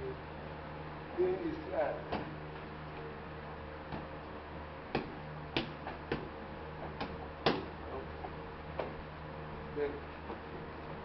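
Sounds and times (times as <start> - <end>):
boxing gloves slapping hands: 4.9 - 7.7.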